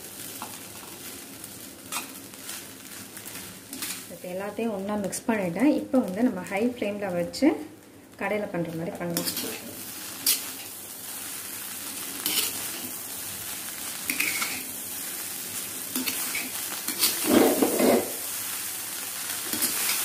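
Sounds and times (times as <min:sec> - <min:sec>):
rice sizzling in a pan: 0:00.0 - 0:20.0
metal spoon scraping a pan: 0:09.2 - 0:10.7, 0:12.2 - 0:12.9, 0:14.1 - 0:14.7, 0:15.9 - 0:18.2, 0:19.5 - 0:20.0.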